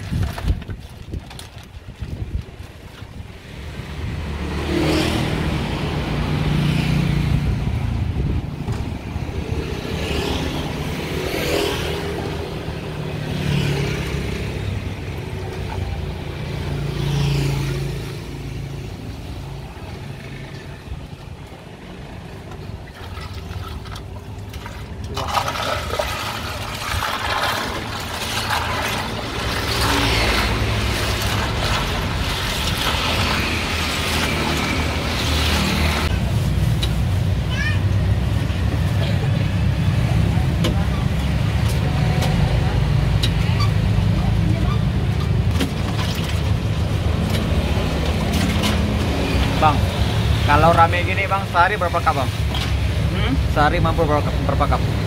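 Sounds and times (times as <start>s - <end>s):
ladle stirring ice in plastic tub: 0.0s - 3.9s, 22.6s - 36.9s, 44.8s - 53.5s
vehicles passing: 0.0s - 55.0s.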